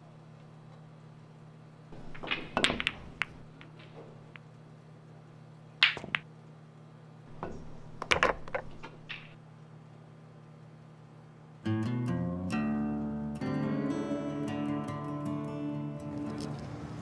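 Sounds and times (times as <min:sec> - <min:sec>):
low steady hum: 0:00.0 - 0:17.0
billiard balls clacking: 0:02.0 - 0:04.5, 0:05.8 - 0:06.3, 0:07.3 - 0:09.4.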